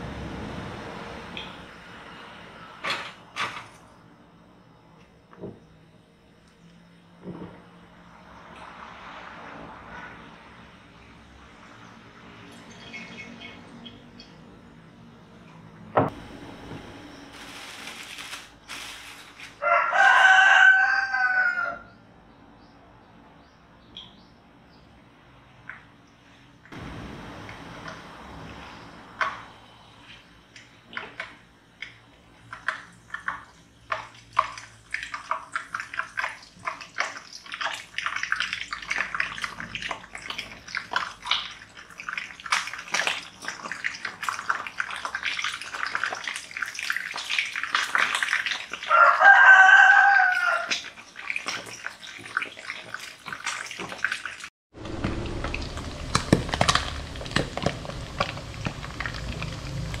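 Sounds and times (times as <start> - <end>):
low hum: 13.6 - 18.3, 26.8 - 30.5, 54.8 - 60.0
fish frying in hot oil: 31.8 - 60.0.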